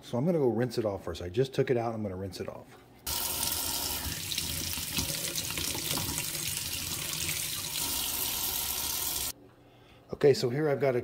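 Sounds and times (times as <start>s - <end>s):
faucet running into steel sink: 3.1s - 9.3s.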